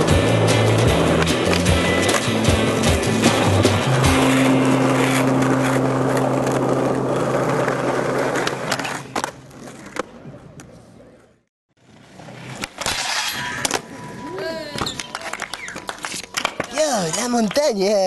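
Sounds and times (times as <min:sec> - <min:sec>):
skateboard wheels rolling on asphalt: 0:00.0 - 0:18.0
faint outdoor ambience: 0:04.2 - 0:18.0
skateboard clacks: 0:14.8 - 0:18.0.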